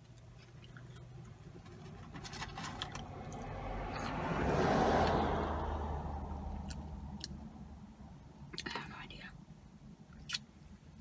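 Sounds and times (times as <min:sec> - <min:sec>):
vehicle driving past: 0:02.4 - 0:07.8.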